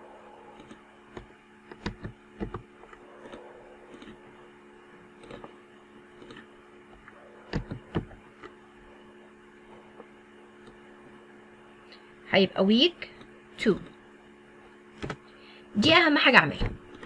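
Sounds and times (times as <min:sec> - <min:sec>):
electrical mains hum: 0:00.0 - 0:17.0
computer mouse clicks: 0:00.5 - 0:04.2, 0:05.2 - 0:05.6, 0:06.2 - 0:08.6.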